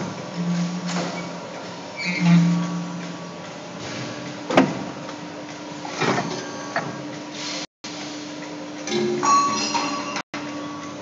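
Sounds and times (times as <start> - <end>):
machine humming: 0.0 - 7.3.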